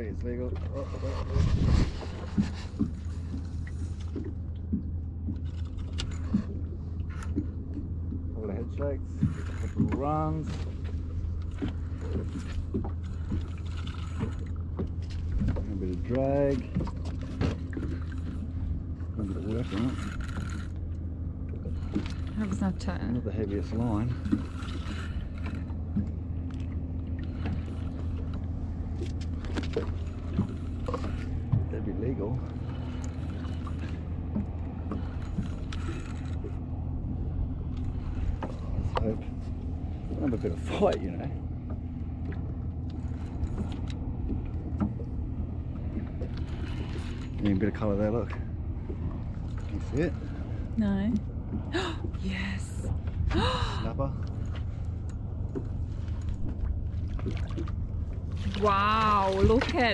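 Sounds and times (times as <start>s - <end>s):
boat low rumble: 0.0s - 59.9s
light knocks and clicks: 40.2s - 47.6s.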